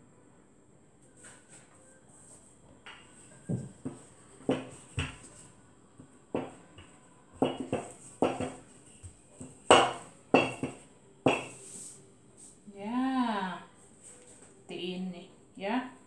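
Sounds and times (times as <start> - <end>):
rolling pin knocking and rolling: 2.9 - 5.4, 6.3 - 8.7, 9.4 - 11.6.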